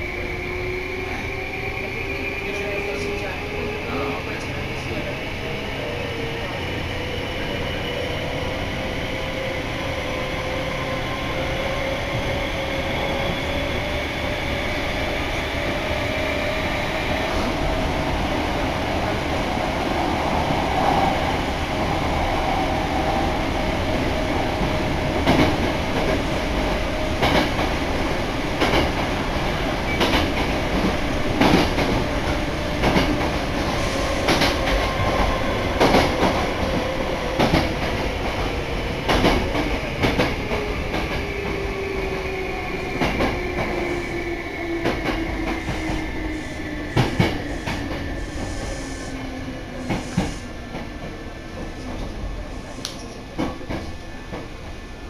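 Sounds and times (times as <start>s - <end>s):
train rumbling: 0.0s - 55.0s.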